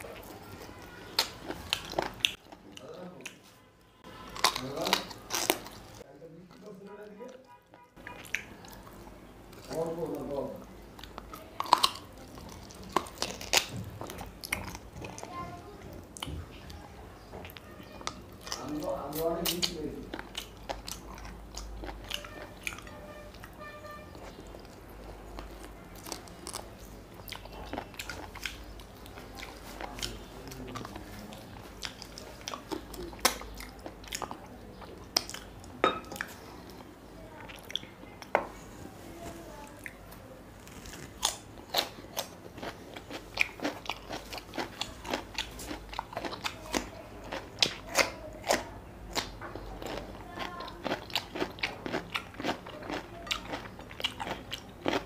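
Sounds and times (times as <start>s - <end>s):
person chewing food: 0.0s - 38.7s, 39.6s - 55.0s
crunchy bites: 4.1s - 6.0s, 40.6s - 55.0s.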